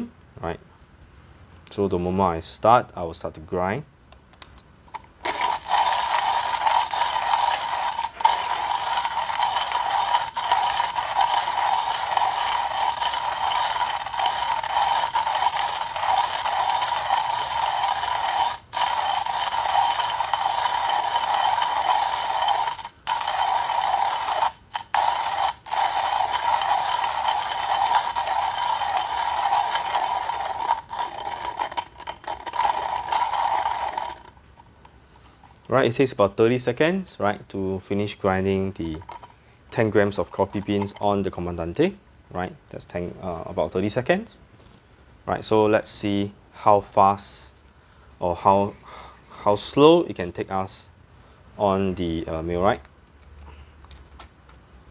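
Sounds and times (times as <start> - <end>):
hand coffee grinder grinding: 4.9 - 35.7, 38.5 - 41.6.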